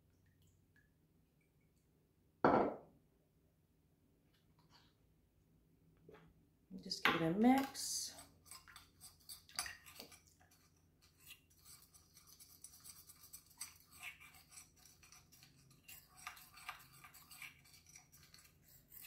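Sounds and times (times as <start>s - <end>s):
metal spoon scraping a bowl: 7.5s - 19.0s.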